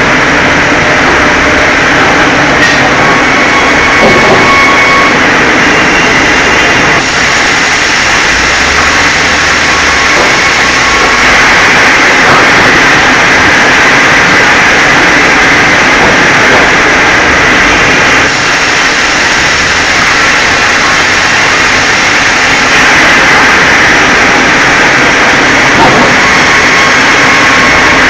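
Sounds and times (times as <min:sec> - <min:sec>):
band saw sawing through log: 0:02.6 - 0:28.0.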